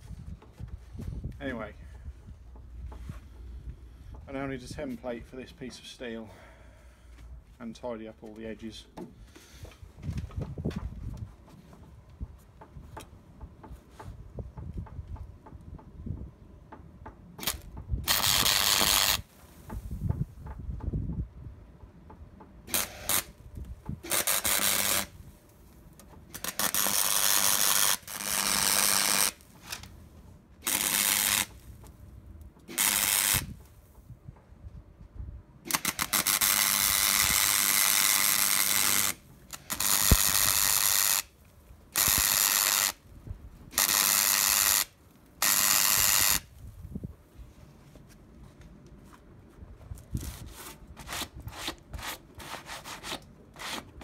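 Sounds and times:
welder arc crackling: 17.4s - 19.3s, 24.0s - 25.2s, 26.3s - 29.9s, 30.6s - 31.6s, 32.7s - 33.5s, 35.7s - 41.3s, 41.9s - 43.0s, 43.7s - 46.5s.

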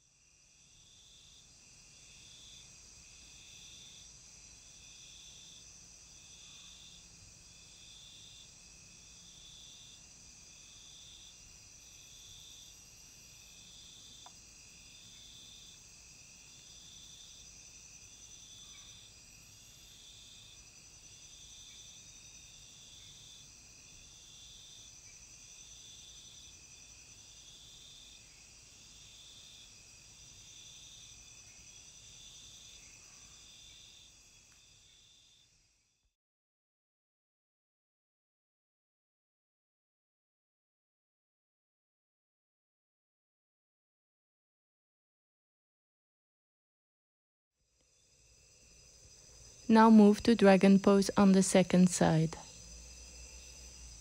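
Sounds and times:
high-pitched insect chorus: 0.0s - 35.8s, 47.8s - 54.0s
insect pulsing call: 0.5s - 35.6s, 47.8s - 54.0s.

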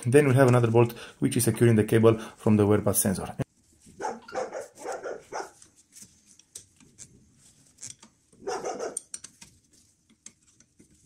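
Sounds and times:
dog barking: 4.0s - 5.6s, 8.4s - 9.1s.

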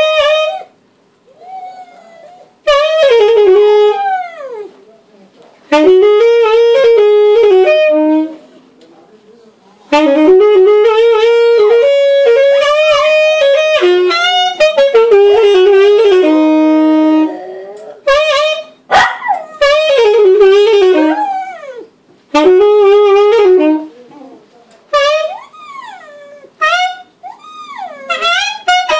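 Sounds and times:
saxophone melody: 0.0s - 0.8s, 1.5s - 4.7s, 5.7s - 8.5s, 9.9s - 24.3s, 24.9s - 28.9s
dog howling: 1.3s - 2.6s, 17.2s - 18.1s, 21.0s - 21.9s, 27.2s - 28.7s.

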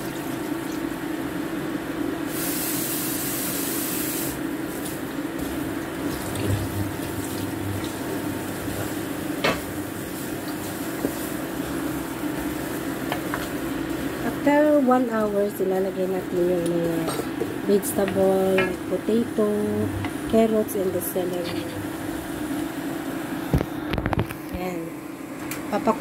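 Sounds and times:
steady hum: 0.0s - 26.0s
water pouring and splashing: 4.8s - 8.9s.

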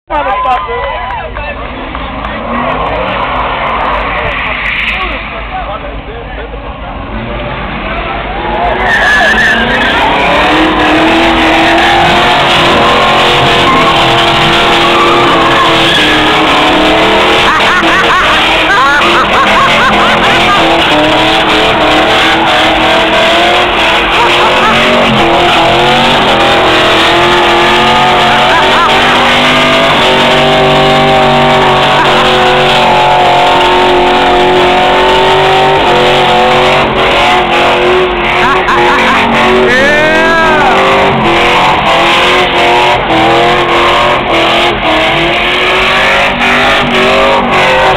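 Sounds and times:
car engine at high revs: 1.3s - 47.9s
tyres squealing: 8.4s - 47.9s.

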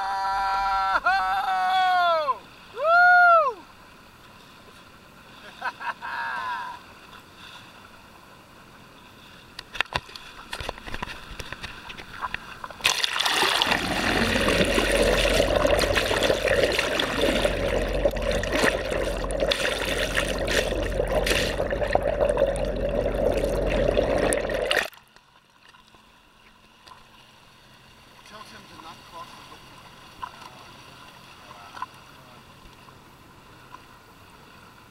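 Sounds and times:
water splashing against microphone: 9.9s - 25.0s
muffled underwater rushing: 12.0s - 24.9s
steady hum: 12.8s - 24.9s.

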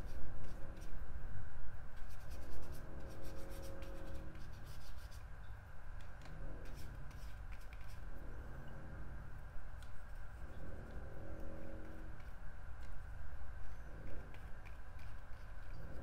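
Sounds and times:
brush scratching on paper: 0.0s - 1.0s, 1.9s - 5.3s, 6.0s - 8.3s, 13.7s - 16.0s.

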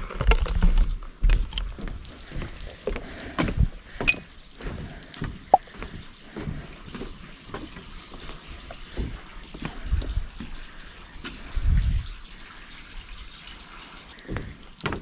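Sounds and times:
water dripping: 1.4s - 15.0s
footsteps on wooden planks: 8.9s - 10.6s.

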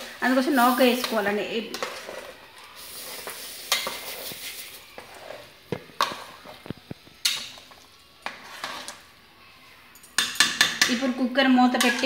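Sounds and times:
ladle knocking and scraping pot: 1.0s - 2.4s, 3.2s - 9.0s, 10.2s - 11.2s.

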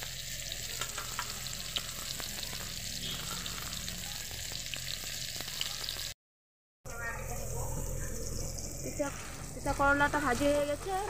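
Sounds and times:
vegetable slices sizzling in oil: 0.0s - 6.2s.

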